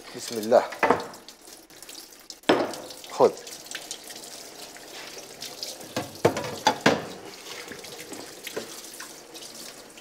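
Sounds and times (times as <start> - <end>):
water running from tap into sink: 0.0 - 10.0
kitchen utensils clattering: 5.9 - 7.2.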